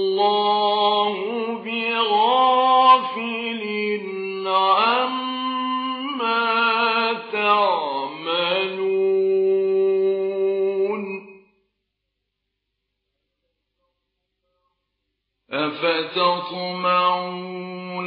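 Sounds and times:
man chanting: 0:00.0 - 0:11.2, 0:15.5 - 0:18.0.

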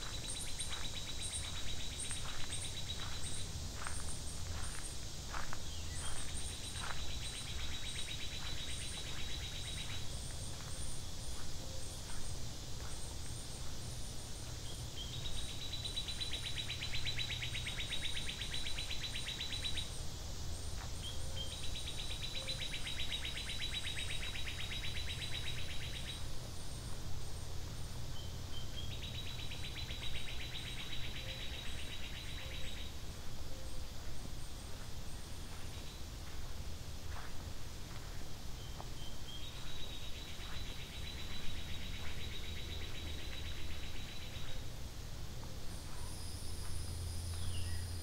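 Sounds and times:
faint high chirping: 0:00.0 - 0:13.7
steady low background noise: 0:00.0 - 0:48.0.

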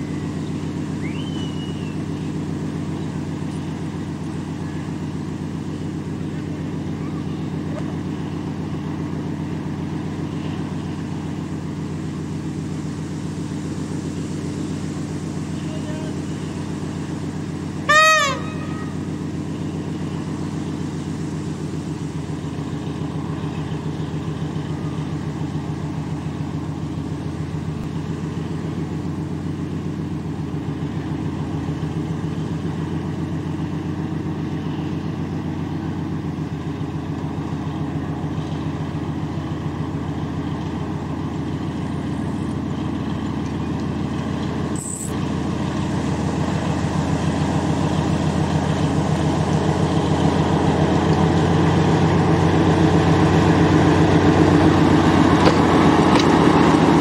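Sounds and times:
diesel locomotive engine: 0:00.0 - 0:57.0
horn blast: 0:17.8 - 0:19.2.

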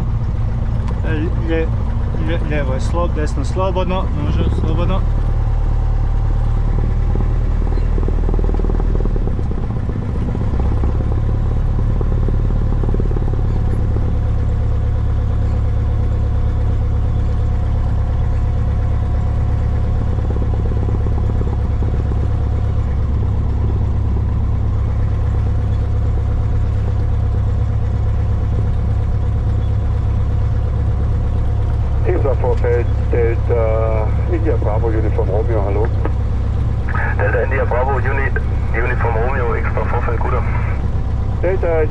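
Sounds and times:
aircraft engine and propeller running: 0:00.0 - 0:41.9.

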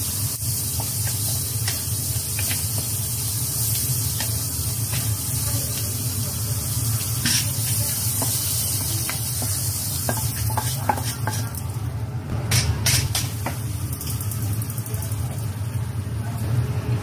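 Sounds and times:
vegetables sizzling in wok: 0:00.0 - 0:12.0, 0:12.6 - 0:16.6
spatula scraping pan: 0:09.1 - 0:11.6.

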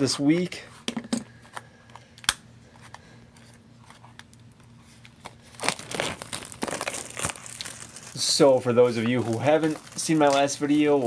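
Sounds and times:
plastic wrap crinkling and tearing: 0:03.9 - 0:11.0.

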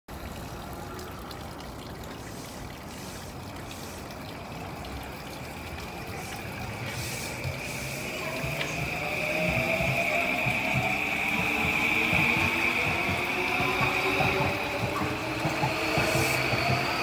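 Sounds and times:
train wheels rumbling: 0:06.4 - 0:17.0
rising electric motor whine: 0:07.6 - 0:17.0.

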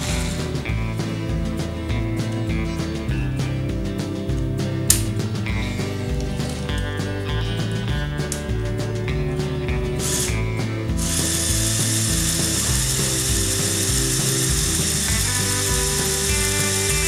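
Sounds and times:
background music: 0:00.0 - 0:17.0
toy winch motor whirring: 0:10.0 - 0:10.4, 0:11.0 - 0:17.0.

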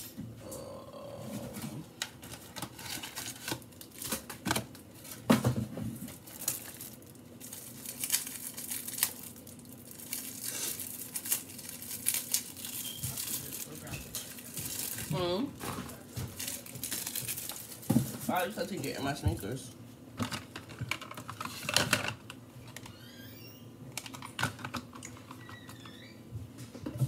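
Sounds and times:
crinkling and rustling: 0:01.3 - 0:19.6, 0:20.2 - 0:23.0.

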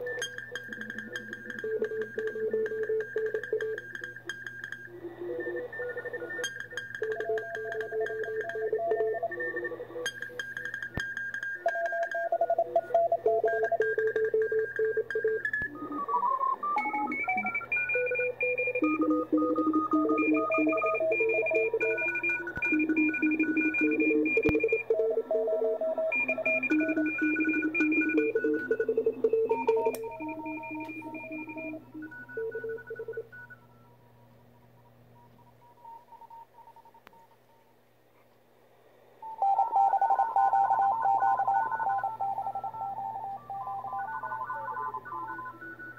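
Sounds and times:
morse code radio tones: 0:00.0 - 0:33.8.

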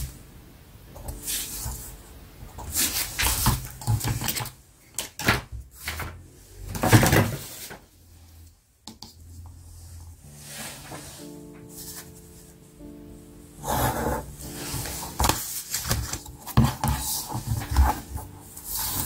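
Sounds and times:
paper rustling: 0:02.6 - 0:06.1, 0:14.4 - 0:19.0.

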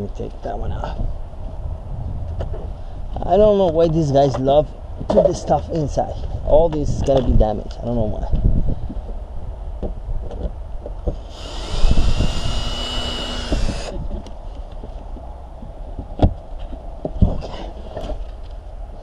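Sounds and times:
cordless drill whining: 0:11.2 - 0:14.0.

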